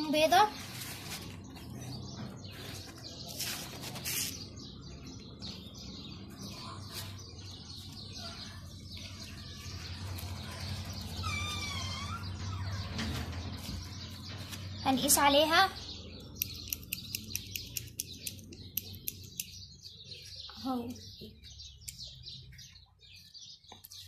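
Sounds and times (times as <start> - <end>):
bird chirping: 0.0 - 24.0
foam sheets rustling: 0.4 - 1.7, 2.6 - 4.4.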